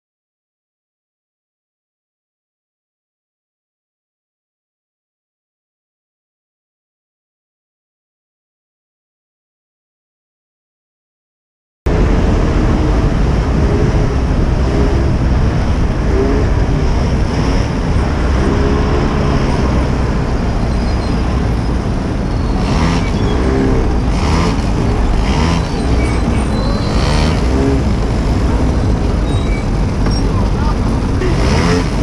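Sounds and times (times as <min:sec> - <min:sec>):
wind rumble on microphone: 0:11.9 - 0:32.0
small kart engine revving: 0:12.0 - 0:32.0.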